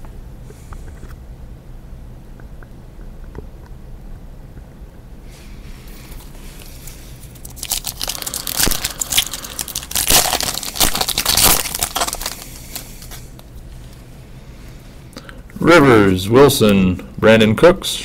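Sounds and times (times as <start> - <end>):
foil wrapper crinkling: 5.9 - 13.5.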